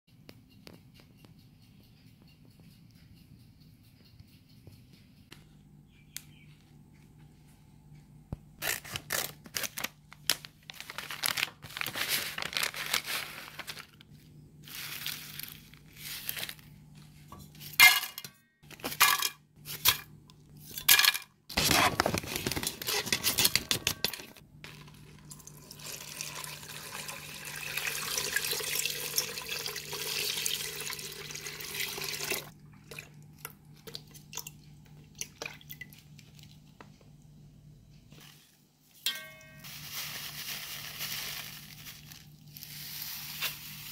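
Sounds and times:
packaging rustling and tearing: 0:08.6 - 0:16.8, 0:21.5 - 0:24.4, 0:39.6 - 0:43.9
water pouring into pot: 0:25.2 - 0:33.1.

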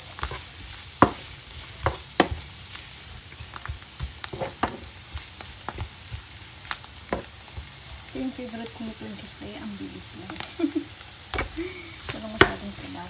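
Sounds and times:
vegetables sizzling in oil: 0:00.0 - 0:13.0
spatula knocking and scraping pan: 0:00.2 - 0:02.5, 0:03.6 - 0:06.3, 0:07.1 - 0:07.8, 0:11.4 - 0:12.8.

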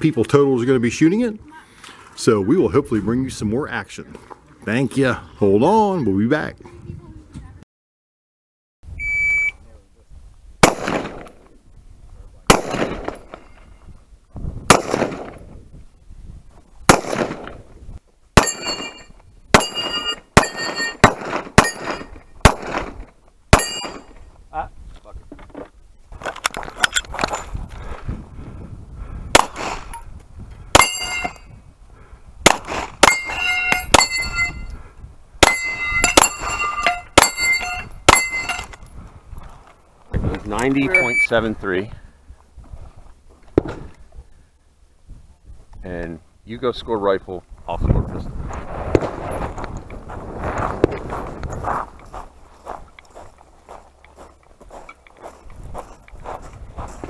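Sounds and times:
pistol shots: 0:10.6 - 0:11.4, 0:12.5 - 0:13.4, 0:14.7 - 0:15.4, 0:16.9 - 0:17.6, 0:18.4 - 0:24.1, 0:29.4 - 0:30.0, 0:30.8 - 0:31.4, 0:32.4 - 0:34.5
steel plates ringing: 0:18.4 - 0:22.2, 0:23.6 - 0:24.2, 0:30.8 - 0:31.5, 0:33.0 - 0:34.7, 0:35.4 - 0:38.8
footsteps on gravel: 0:48.7 - 0:57.0.

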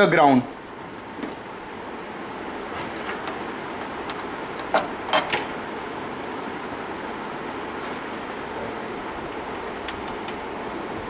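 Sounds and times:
steady background hiss: 0:00.0 - 0:11.0.

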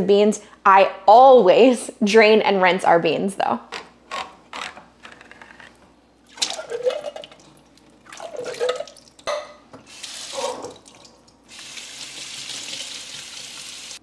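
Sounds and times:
tap water running over beans: 0:06.3 - 0:14.0.

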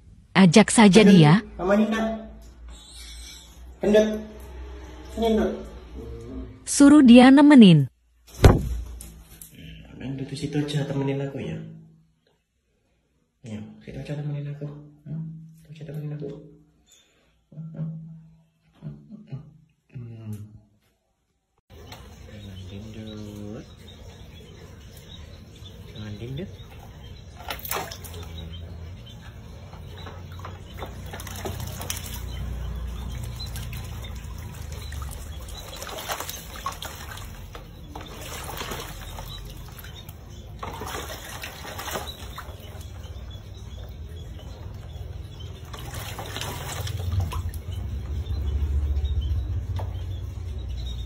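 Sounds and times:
owl splashing in water: 0:21.7 - 0:51.0.

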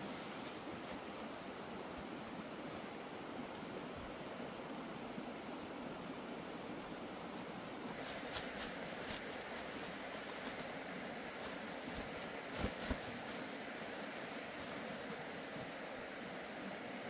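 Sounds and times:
steady background hiss: 0:00.0 - 0:17.0
sack flapping: 0:07.9 - 0:15.8.

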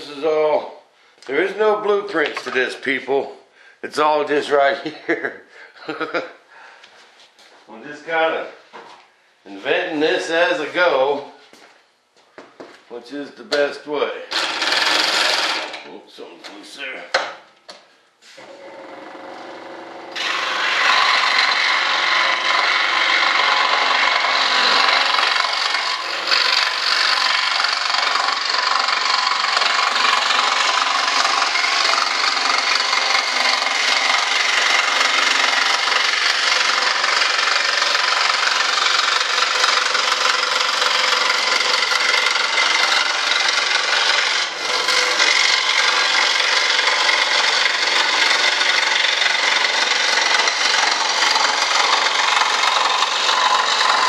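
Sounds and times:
power saw cutting: 0:13.5 - 0:16.0, 0:18.3 - 0:54.0.

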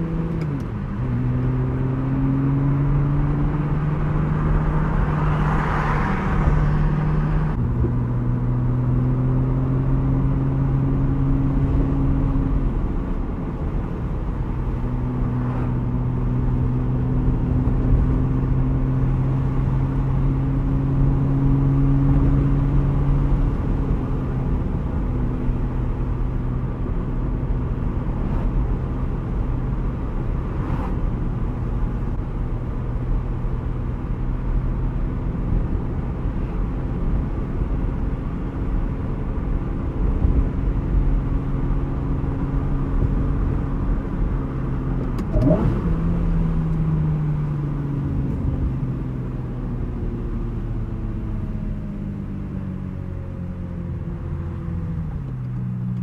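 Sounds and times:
car engine running: 0:00.0 - 0:56.0.

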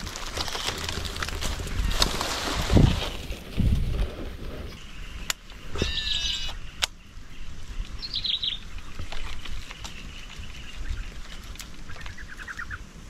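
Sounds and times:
birds chirping: 0:04.0 - 0:13.0.

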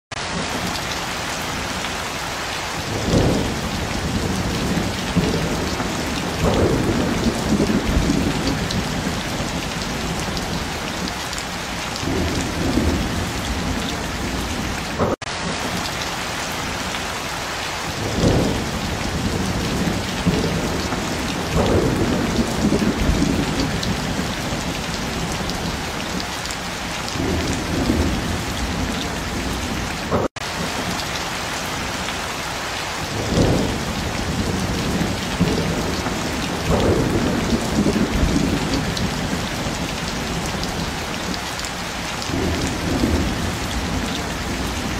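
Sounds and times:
steady rain falling: 0:00.1 - 0:44.9
low rolls of thunder: 0:02.9 - 0:11.0, 0:12.0 - 0:15.1, 0:18.0 - 0:26.1, 0:27.2 - 0:30.2, 0:33.1 - 0:40.9, 0:42.2 - 0:44.9.

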